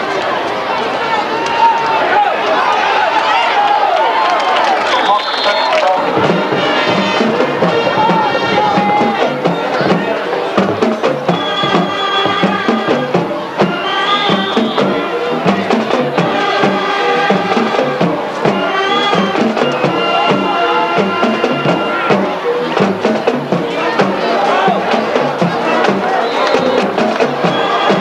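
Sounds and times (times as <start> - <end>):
music with held notes: 6.0 - 28.0
steady drum beat: 6.0 - 28.0.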